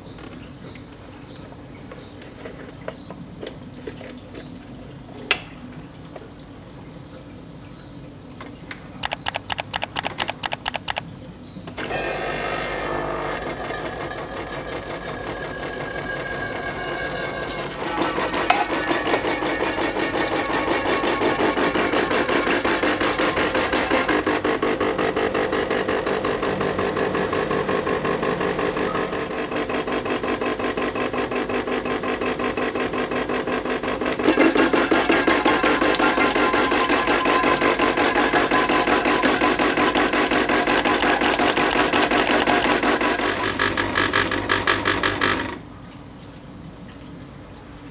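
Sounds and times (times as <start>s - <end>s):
espresso machine pump buzzing: 9.0s - 11.0s, 11.8s - 45.6s.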